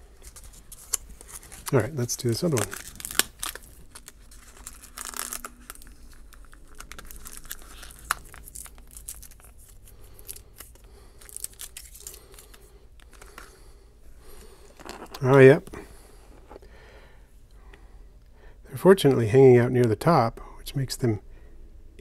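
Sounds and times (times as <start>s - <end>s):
plastic crinkling: 0.1s - 13.6s
tape peeling off plastic: 0.2s - 13.4s.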